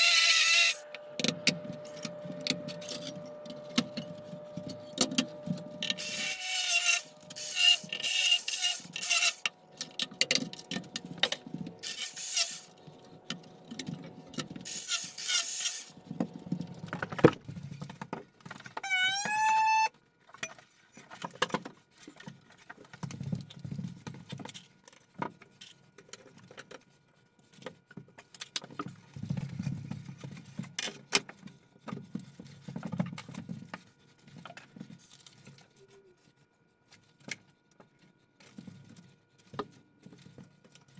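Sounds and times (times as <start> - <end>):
vacuum pump whine: 0.0 - 8.0.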